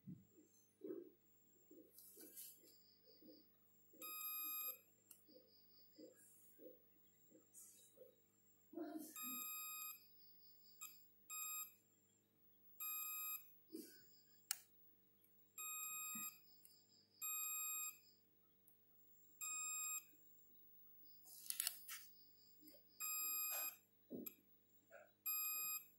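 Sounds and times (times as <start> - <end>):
multimeter continuity beeps: 4.0 - 6.8, 9.2 - 11.8, 12.8 - 13.6, 15.6 - 18.1, 19.4 - 24.4, 25.3 - 25.9.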